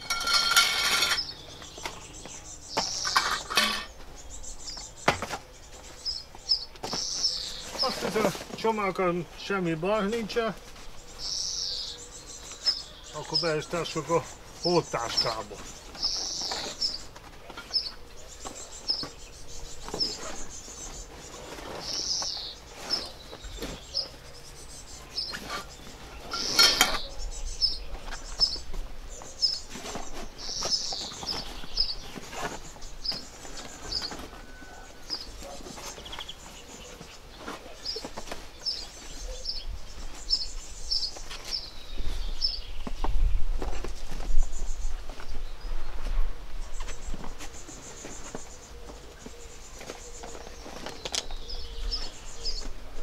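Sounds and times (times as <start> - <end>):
small bird chirping: 11.0 - 43.2.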